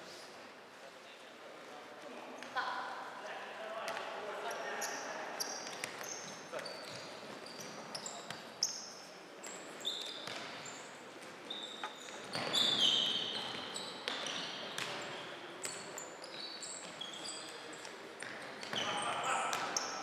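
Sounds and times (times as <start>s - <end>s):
trainers squeaking on wooden floor: 5.4s - 8.8s, 9.8s - 18.0s.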